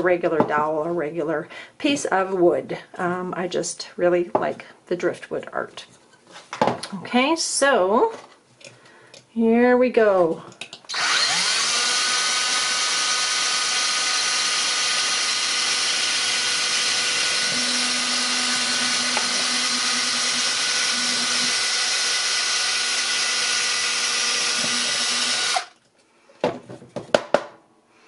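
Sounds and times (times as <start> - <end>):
drill boring through wood: 10.9 - 25.8.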